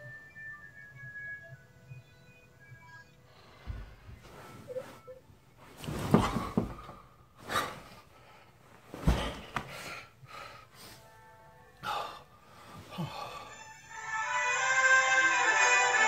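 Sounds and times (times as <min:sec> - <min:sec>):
faint background music: 0:00.0 - 0:16.0
bedding rustling: 0:03.7 - 0:11.1.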